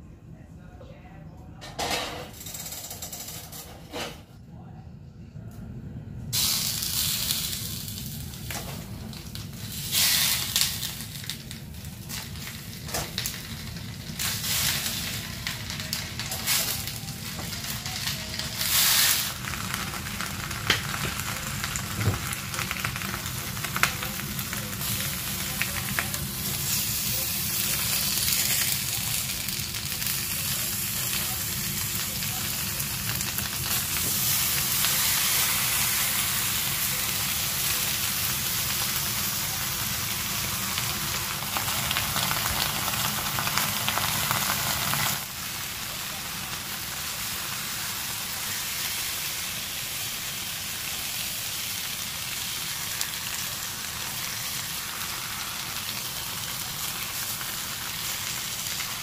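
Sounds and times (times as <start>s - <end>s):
food sizzling in a pan: 6.4s - 59.0s
pops and crackles: 20.6s - 21.4s.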